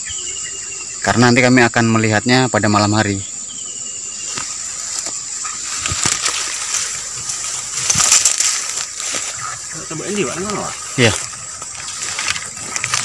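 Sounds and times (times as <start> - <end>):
high-pitched insect drone: 0.0 - 13.0
rustling through undergrowth: 3.3 - 13.0.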